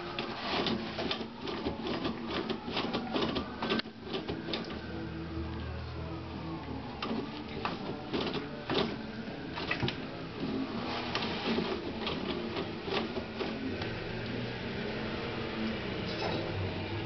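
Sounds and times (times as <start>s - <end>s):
toilet paper rustling and tearing: 0.0s - 5.0s, 6.8s - 14.0s.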